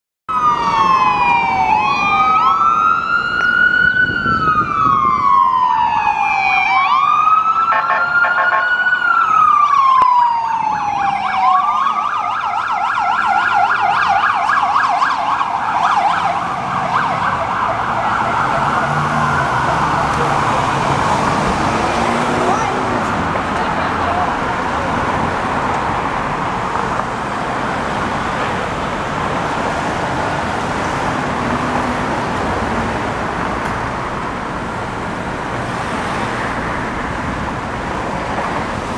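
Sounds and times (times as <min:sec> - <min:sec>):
siren wailing: 0:00.3 - 0:22.9
siren yelping: 0:00.3 - 0:22.9
city traffic: 0:00.3 - 0:38.9.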